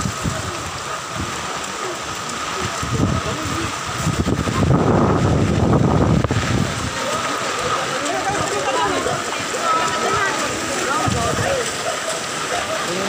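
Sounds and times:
wind buffeting microphone: 0.0s - 12.8s
heavy rain hissing: 0.0s - 13.0s.

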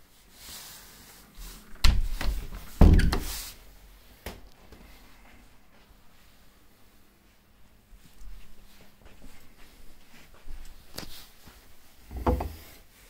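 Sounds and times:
door heavy thumps: 1.8s - 3.3s.

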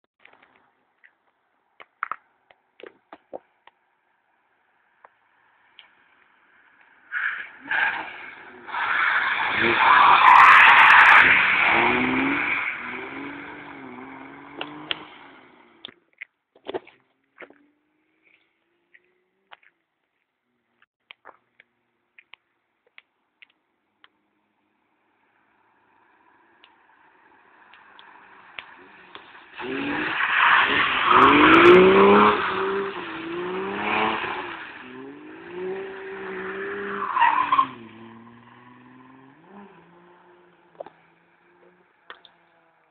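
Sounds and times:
tyre noise on wet road: 0.2s - 23.6s, 24.6s - 42.9s
car engine revving: 9.4s - 15.9s, 26.1s - 42.8s.

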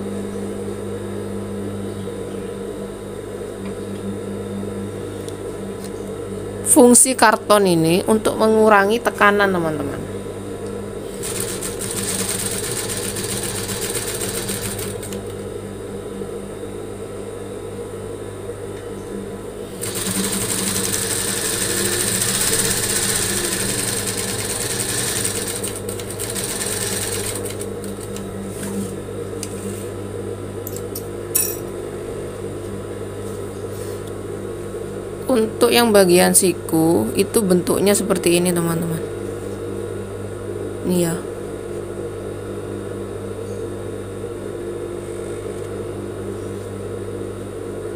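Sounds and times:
steady hum: 0.0s - 47.9s
sewing machine stitching: 11.1s - 15.2s, 19.8s - 28.2s.

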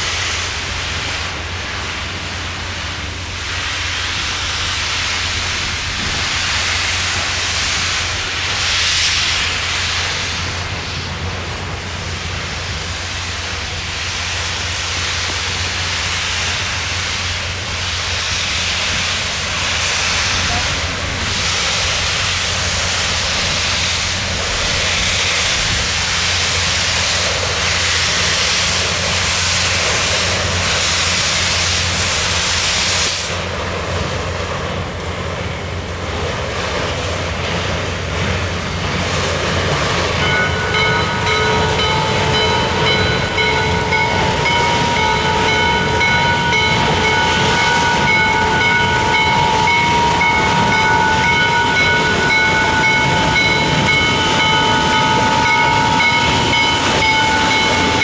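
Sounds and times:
rumble of engine and train: 0.0s - 58.0s
steam locomotive hissing: 0.0s - 58.0s
high multi-tone ringing: 40.2s - 58.0s.

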